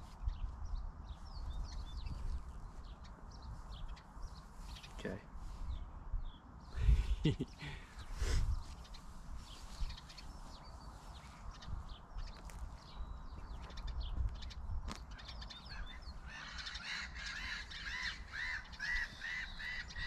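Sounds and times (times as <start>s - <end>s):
bird chirps: 0.0s - 20.0s
bird rapid repeated calls: 15.0s - 20.0s.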